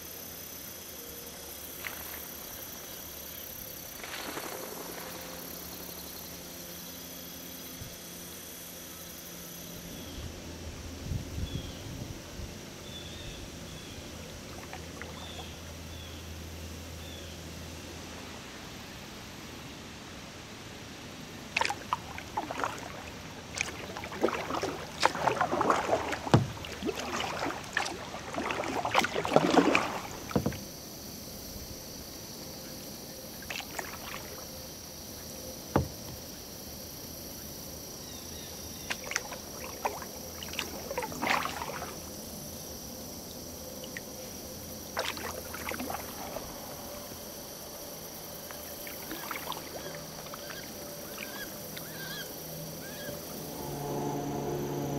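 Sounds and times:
kayak paddle splashing in water: 1.6s - 7.1s, 14.5s - 15.6s, 21.4s - 31.8s, 33.3s - 36.9s, 38.4s - 54.9s.

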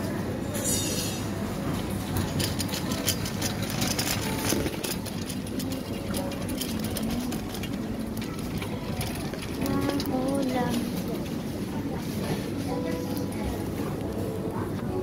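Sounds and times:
low supermarket rumble: 0.0s - 15.0s.

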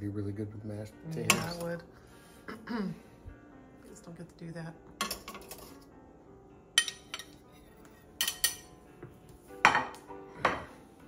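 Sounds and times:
spoon and plates clinking: 1.1s - 1.8s, 5.0s - 5.9s, 6.8s - 8.8s, 9.6s - 10.7s.

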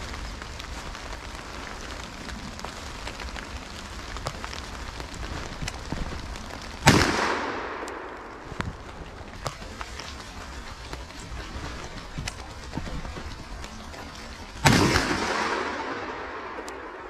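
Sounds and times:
footsteps crunching wet leaves: 0.0s - 17.0s
light rain pattering: 0.0s - 17.0s
gunshot echoing: 6.8s - 8.3s, 14.6s - 17.0s.

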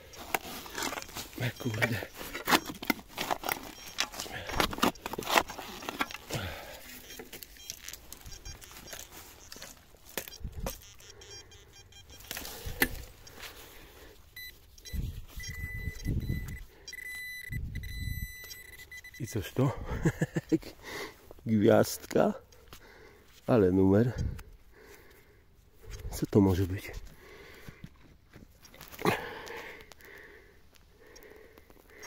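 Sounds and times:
digging tool scraping stones: 0.0s - 10.8s
metal detector high tone: 0.0s - 20.5s.

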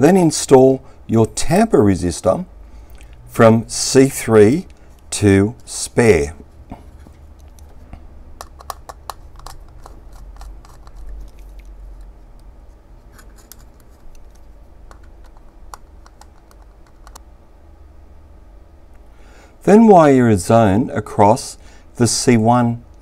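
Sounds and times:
plastic housing being handled: 8.4s - 12.1s, 13.1s - 17.2s.

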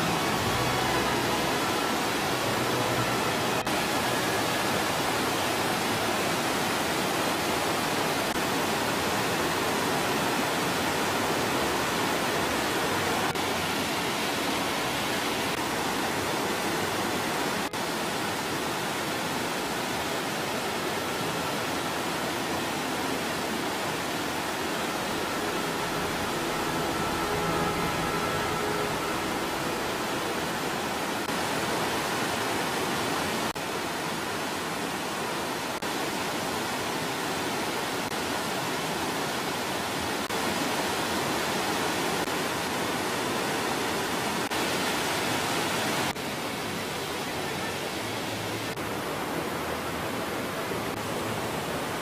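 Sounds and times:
stream cascading over rocks: 0.0s - 52.0s.

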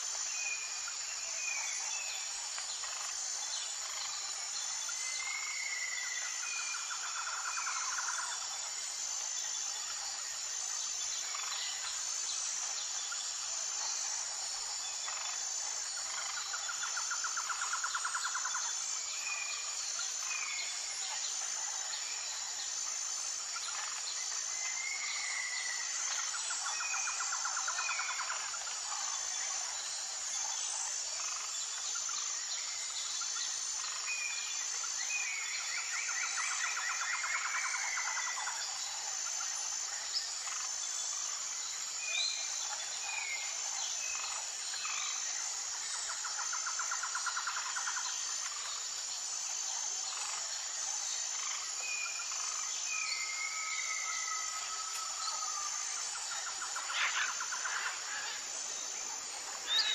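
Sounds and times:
high-pitched insect chirring: 0.1s - 59.9s
birds singing trills: 49.7s - 59.9s.

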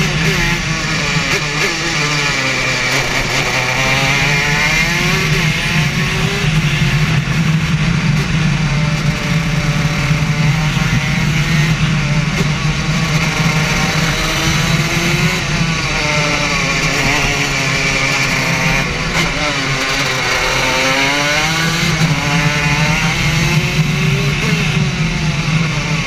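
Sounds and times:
racing kart engine: 0.0s - 26.0s.

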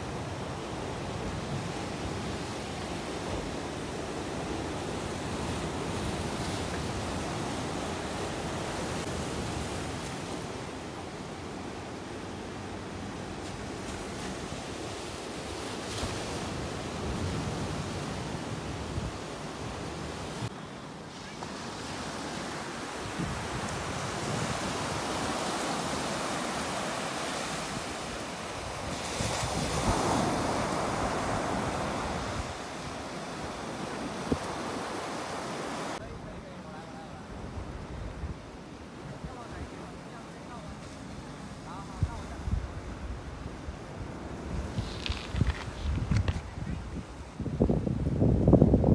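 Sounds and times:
waves breaking: 0.0s - 47.4s
wind on microphone: 22.9s - 36.0s, 41.9s - 48.9s
wind rumbling on microphone: 23.0s - 26.2s, 37.3s - 39.7s, 41.9s - 48.9s.

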